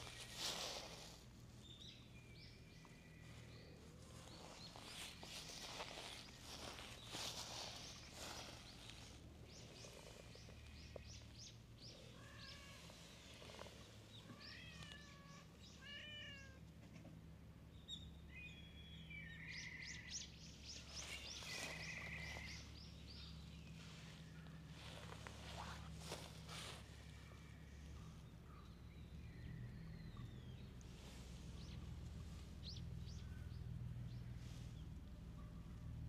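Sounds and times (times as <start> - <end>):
cat meowing faintly: 12.0 - 13.1, 14.3 - 16.6.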